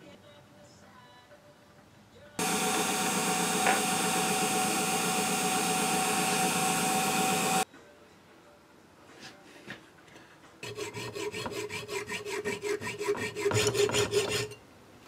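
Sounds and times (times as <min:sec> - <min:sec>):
drill motor whining: 0:02.4 - 0:07.6.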